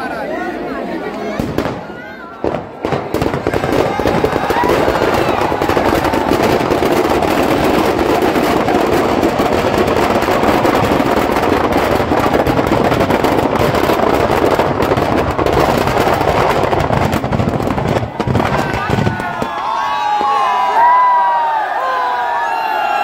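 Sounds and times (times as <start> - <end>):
firecrackers crackling: 1.0 - 21.2.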